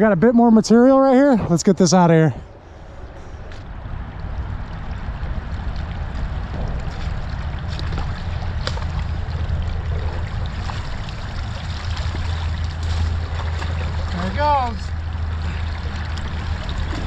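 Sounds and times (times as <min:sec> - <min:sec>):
creek water gurgling: 0:03.9 - 0:17.0
rubber boots sloshing in water: 0:06.2 - 0:14.4
sharp splash: 0:06.6 - 0:17.0.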